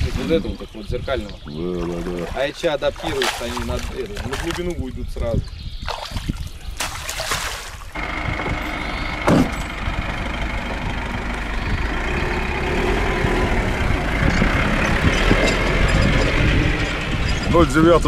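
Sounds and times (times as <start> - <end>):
truck engine running: 8.0 - 17.8.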